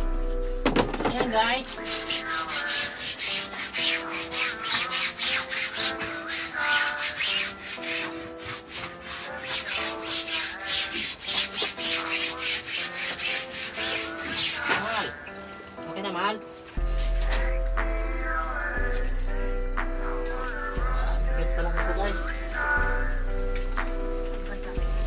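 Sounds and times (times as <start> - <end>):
background music: 0.0 - 25.0
scrubbing wet foam mattress: 1.5 - 15.3.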